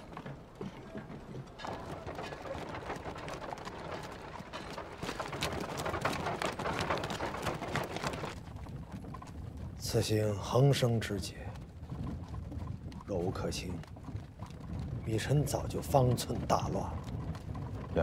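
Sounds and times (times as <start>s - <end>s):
horse hooves on stone: 0.0s - 18.0s.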